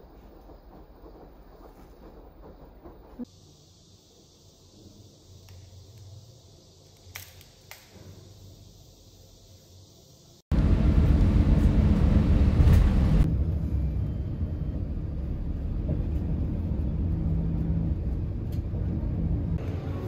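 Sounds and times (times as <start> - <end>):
bus engine and road rumble: 10.5 - 20.0.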